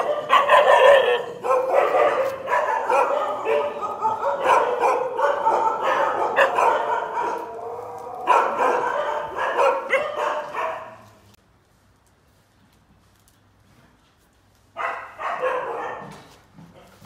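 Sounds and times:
dogs barking and yipping: 0.0 - 11.3, 14.8 - 16.3.

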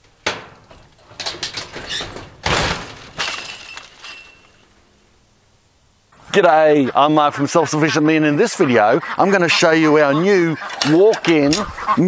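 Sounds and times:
metal frame clattering and rattling: 0.0 - 4.7, 10.6 - 11.9
loud metal crash: 0.2 - 4.7.

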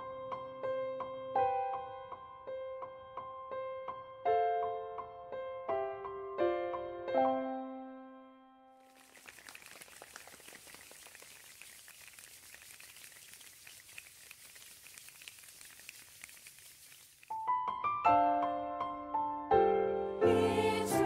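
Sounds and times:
rain-like patter of ticks: 8.9 - 17.4.

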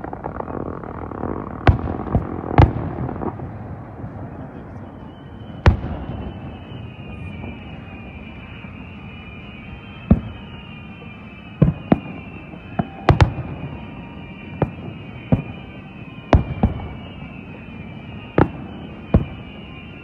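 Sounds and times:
fireworks booming: 0.0 - 20.0.

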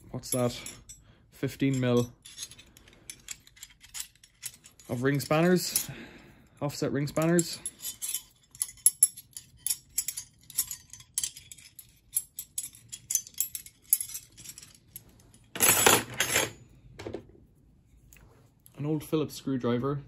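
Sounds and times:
metal tools clattering: 0.2 - 6.0, 7.1 - 16.6
spanners clinking and jangling: 0.2 - 6.0, 7.1 - 16.6.

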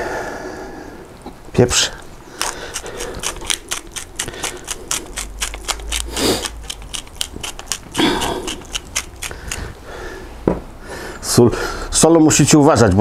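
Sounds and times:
pepper mill grinding clicks: 2.4 - 9.7.

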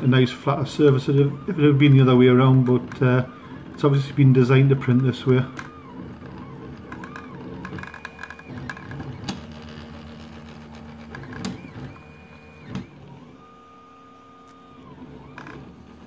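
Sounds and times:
stepper motors whining: 0.0 - 16.0
sharp clicks: 4.9 - 10.2.

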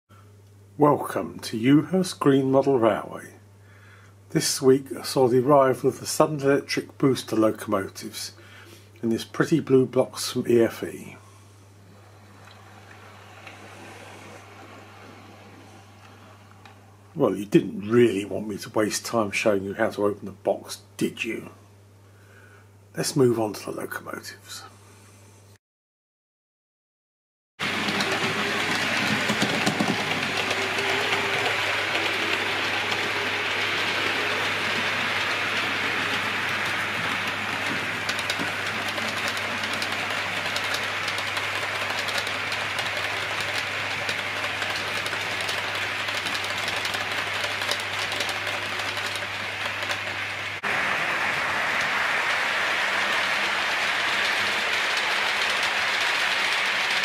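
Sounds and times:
model train motor rumble: 27.6 - 57.0
wheels clicking over rail joints: 27.6 - 57.0.

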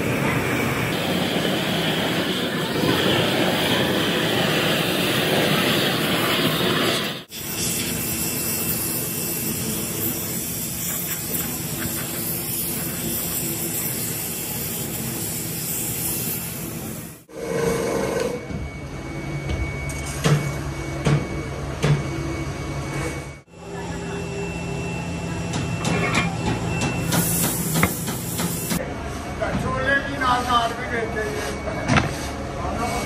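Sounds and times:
torch burner flame roaring: 0.0 - 18.5.

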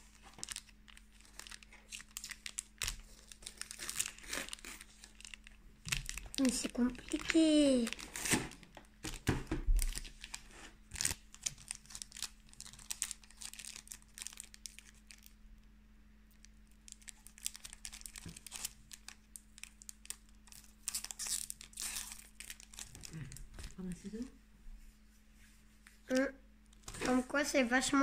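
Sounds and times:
foil pack tearing and crinkling: 0.0 - 15.3, 16.9 - 23.8.

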